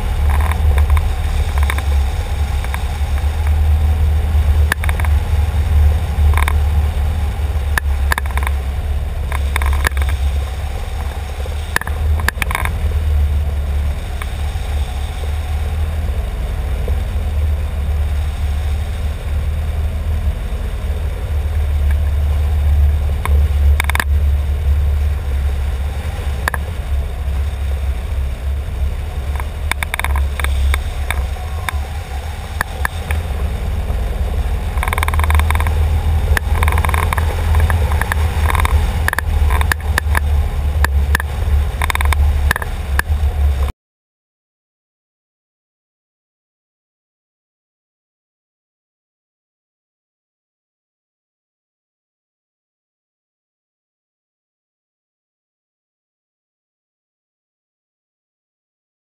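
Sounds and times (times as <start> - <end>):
wind rushing over microphone: 0.0 - 43.7.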